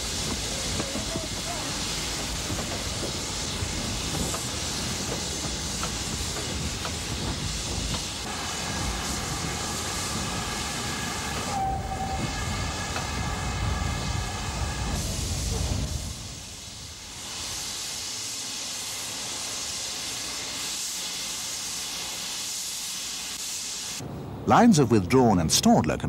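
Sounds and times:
steam locomotive rumble and hiss: 0.0s - 26.0s
steam whistle: 8.3s - 16.2s.

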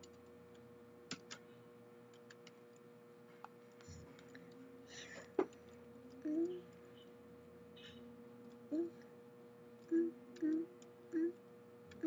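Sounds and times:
computer keyboard keys clicking: 0.0s - 1.4s, 2.1s - 7.0s
faint steady hum: 0.0s - 12.0s.

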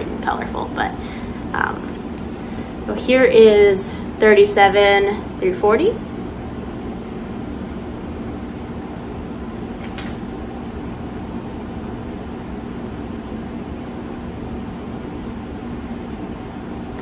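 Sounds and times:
heater whirring and humming: 0.0s - 17.0s.

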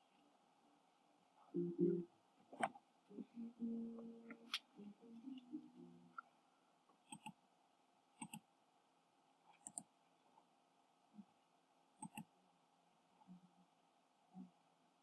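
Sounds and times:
computer mouse clicks: 7.0s - 7.4s, 8.2s - 8.5s, 9.5s - 9.9s, 12.0s - 12.3s.

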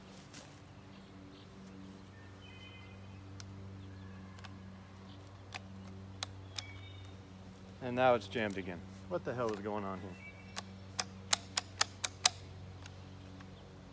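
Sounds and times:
steady low hum: 0.0s - 13.9s
shotgun action metallic clicks: 4.4s - 7.2s, 9.4s - 13.6s.

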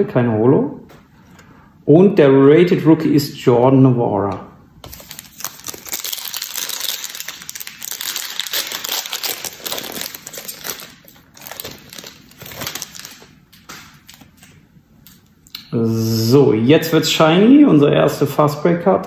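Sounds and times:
foil wrapper crinkling and tearing: 4.8s - 14.6s.

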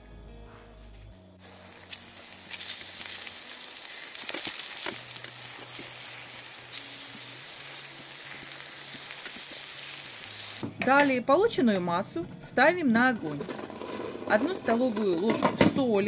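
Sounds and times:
slices sizzling in oil: 1.4s - 10.6s.

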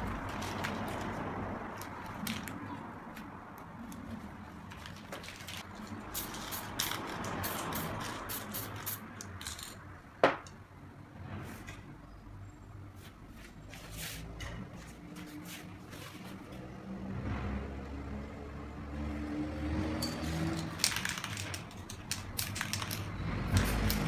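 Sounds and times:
spray can hissing: 6.0s - 9.7s, 21.9s - 24.0s.

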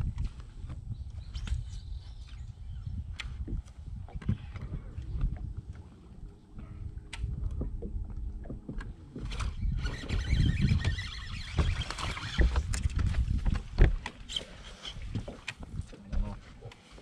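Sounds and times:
wind rumble on microphone: 0.0s - 16.7s
water splashing: 8.3s - 14.4s
fishing reel: 9.3s - 12.7s.

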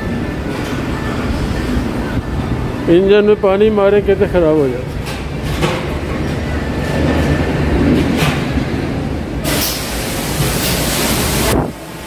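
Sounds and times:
lift mechanical rumble: 0.0s - 12.0s
loud hiss: 9.4s - 12.0s.

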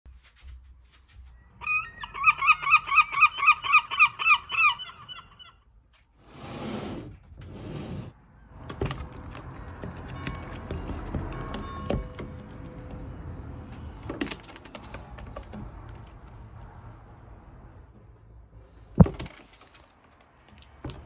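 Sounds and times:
scraping or rustling noise: 0.1s - 1.4s, 5.9s - 8.2s
gull calling: 1.6s - 5.6s.

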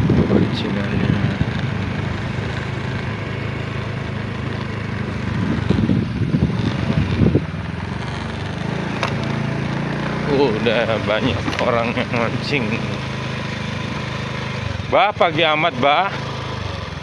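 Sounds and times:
rumbling noise: 0.0s - 10.3s
small motorcycle engine running: 0.0s - 17.0s.

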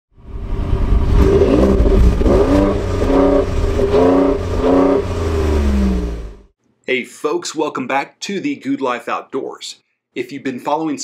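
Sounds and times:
engine revving: 0.3s - 6.5s.

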